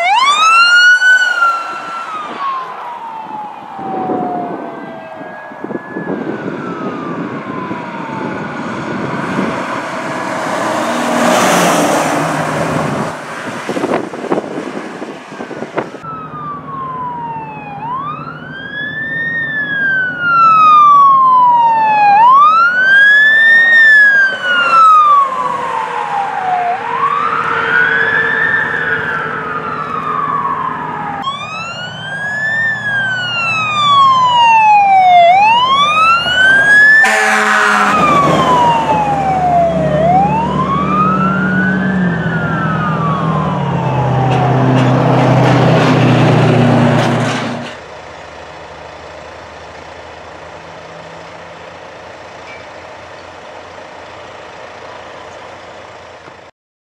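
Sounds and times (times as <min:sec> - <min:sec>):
siren winding down: 0:00.0 - 0:13.2, 0:15.8 - 0:47.2
wail siren: 0:00.0 - 0:14.6, 0:15.3 - 0:47.3
vehicle passing with engine roar: 0:00.0 - 0:56.2.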